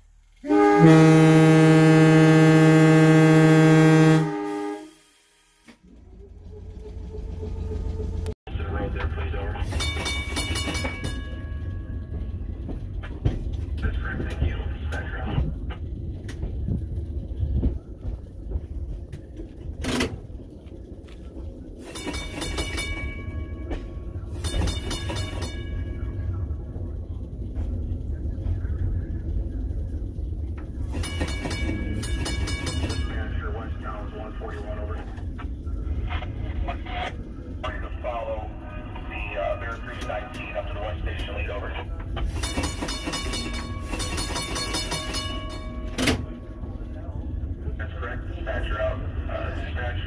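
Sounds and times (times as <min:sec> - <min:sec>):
train rumbling along track: 0:00.0 - 0:50.0
train air horn chord: 0:00.4 - 0:05.8.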